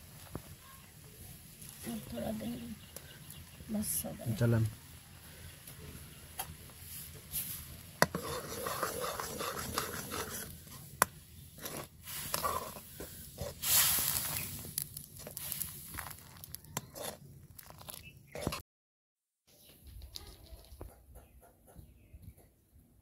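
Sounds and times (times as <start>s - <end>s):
liquid boiling: 5.0s - 18.0s
metal ladle scraping a wok: 7.3s - 10.9s, 11.6s - 14.5s, 16.8s - 18.6s.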